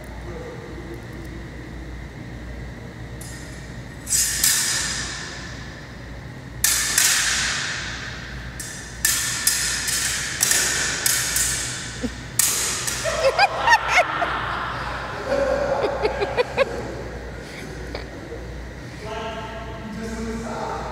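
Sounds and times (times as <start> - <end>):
metal sabre blades clashing: 4.0 - 5.4, 6.6 - 13.3.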